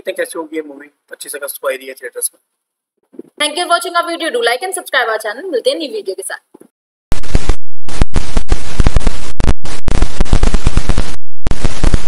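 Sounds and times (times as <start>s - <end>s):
loud crackling with sharp pops: 7.1s - 12.0s.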